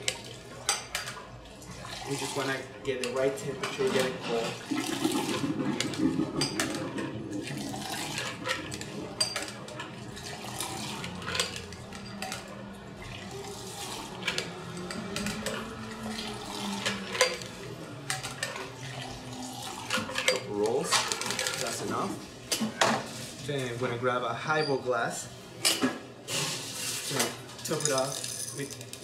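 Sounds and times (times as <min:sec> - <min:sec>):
liquid splashing: 0:03.6 - 0:09.3
ice clattering in metal and glass: 0:27.1 - 0:29.0.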